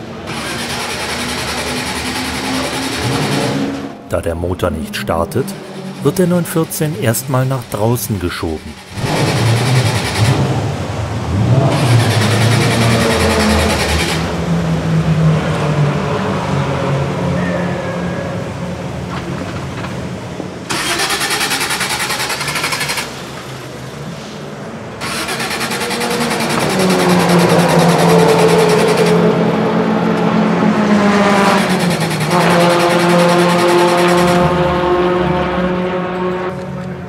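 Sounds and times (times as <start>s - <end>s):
car engine starting and running: 0.0s - 17.8s, 18.4s - 37.0s.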